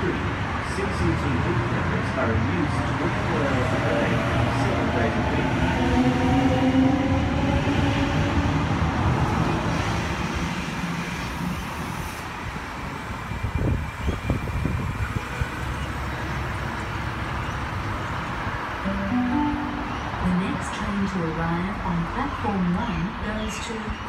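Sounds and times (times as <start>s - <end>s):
rumble of train wheels: 1.0s - 18.6s.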